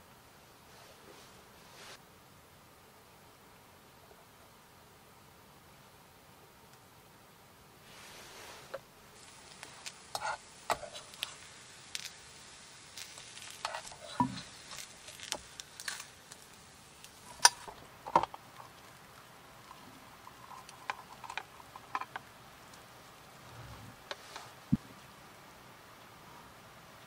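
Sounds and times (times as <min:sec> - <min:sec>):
egg sizzling faintly: 0:07.8 - 0:25.2
spatula scraping and tapping pot: 0:09.5 - 0:11.4, 0:13.4 - 0:15.4, 0:19.6 - 0:22.3.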